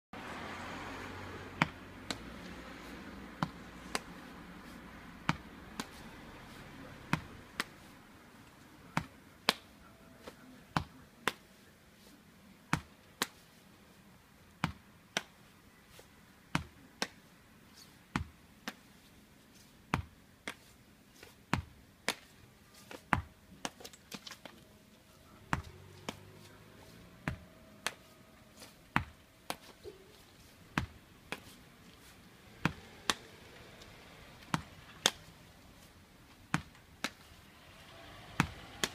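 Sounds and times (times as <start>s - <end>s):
ball smacking wall: 32.5s - 33.3s.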